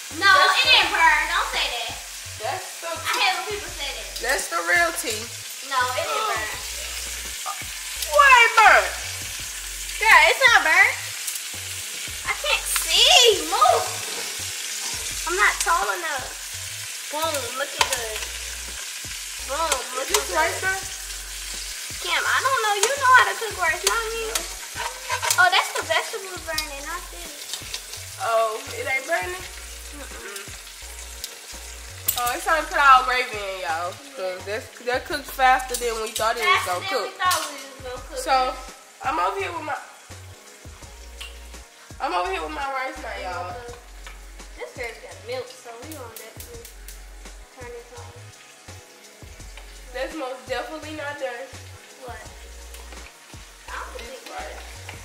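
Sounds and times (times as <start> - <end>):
meat sizzling in a pot: 0.0 - 55.0
metal tongs scraping and clicking: 24.3 - 25.9.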